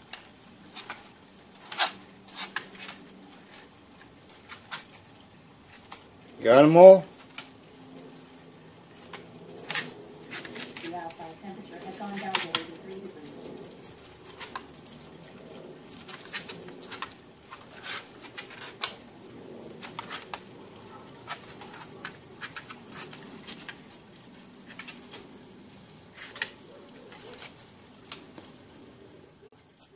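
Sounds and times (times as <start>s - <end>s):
animal scratching in a box: 9.0s - 11.2s, 11.8s - 19.0s, 19.6s - 25.5s.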